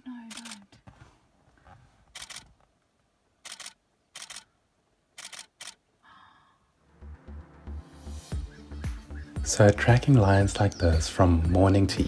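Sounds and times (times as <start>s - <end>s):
camera shutter bursts: 0.3s - 0.6s, 2.2s - 2.5s, 3.4s - 4.5s, 5.2s - 5.8s.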